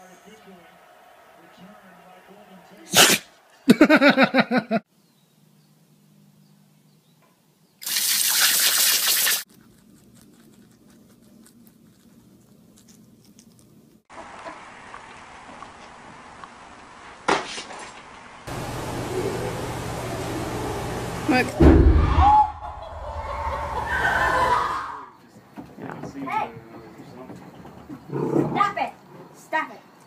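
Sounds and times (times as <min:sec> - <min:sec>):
hose nozzle spraying water: 0:07.8 - 0:09.5
sharp knock: 0:21.6 - 0:22.3.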